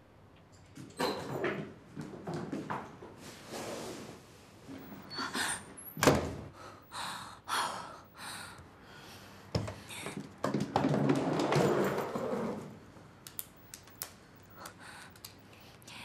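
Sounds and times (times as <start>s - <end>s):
wooden door shutting: 6.0s - 6.4s
woman breathing: 6.5s - 10.4s, 14.3s - 16.0s.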